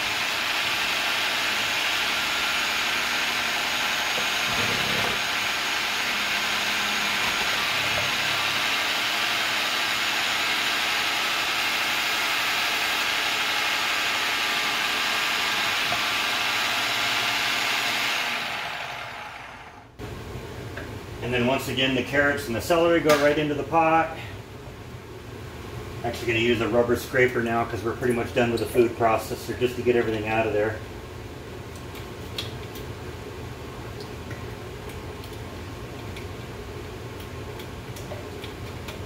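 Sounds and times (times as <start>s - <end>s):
food processor shredding vegetables: 0.0s - 19.8s
motor winding down: 0.0s - 19.9s.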